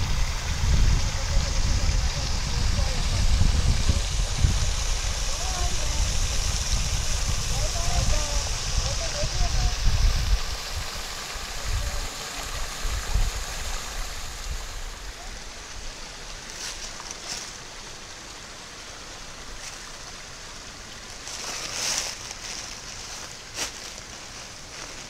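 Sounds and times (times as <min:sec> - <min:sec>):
wind buffeting microphone: 0:00.0 - 0:15.0
rushing outdoor noise: 0:00.0 - 0:25.0.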